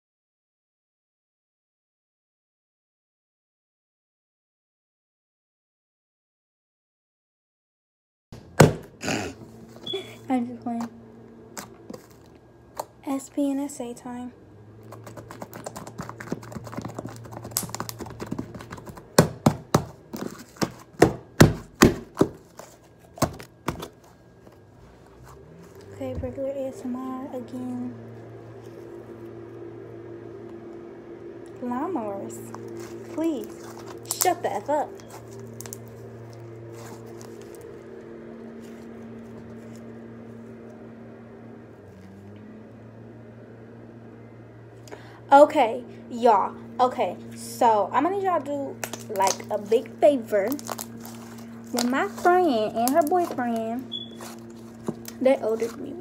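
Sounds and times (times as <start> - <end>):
lawnmower engine humming: 9.4 - 21.0, 22.2 - 56.0
slime squishing in hands: 14.8 - 24.2, 32.5 - 37.7, 48.8 - 56.0
slime squeezed crackling and popping: 32.6 - 34.4, 48.8 - 55.8.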